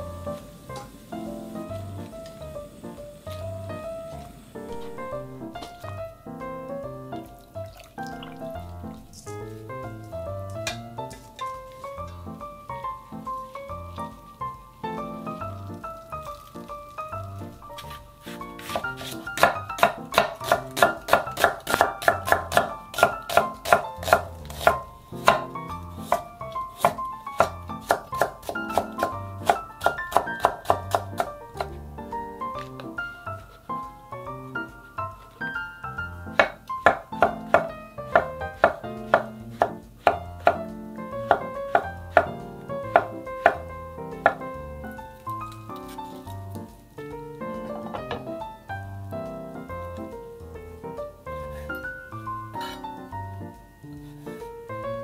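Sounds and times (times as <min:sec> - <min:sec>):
light background music: 0:00.0 - 0:55.0
knife slicing vegetables on board: 0:17.8 - 0:31.8, 0:36.3 - 0:43.6, 0:52.6 - 0:52.9
knife knocking on wooden board: 0:47.8 - 0:48.3.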